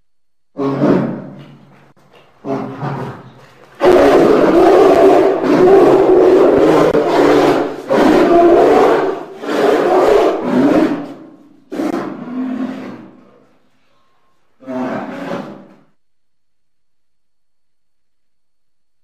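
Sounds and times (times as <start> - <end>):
large animal roaring: 0.6 - 1.4, 2.4 - 13.3, 14.6 - 15.8.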